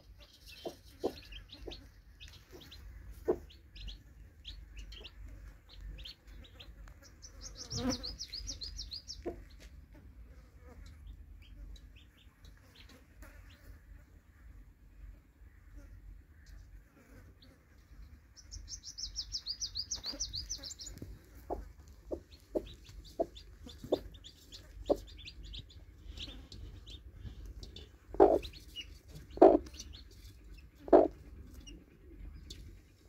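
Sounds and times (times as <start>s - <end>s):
chicks peeping: 0.0s - 9.7s, 17.8s - 33.0s
hen clucking: 0.0s - 9.7s, 18.4s - 32.9s.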